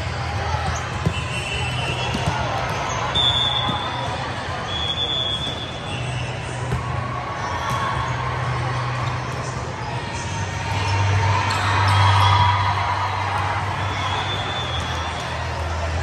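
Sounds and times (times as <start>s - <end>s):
echoing gym noise: 0.0s - 16.0s
volleyball thudding: 0.6s - 4.1s.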